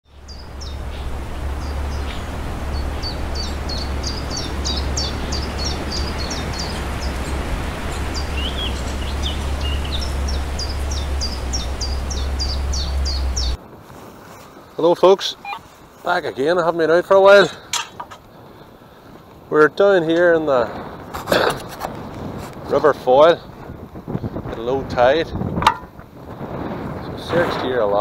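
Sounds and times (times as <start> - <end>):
songbird chirping: 0.0 - 13.6, 14.3 - 17.7
wind buffeting microphone: 0.0 - 28.0.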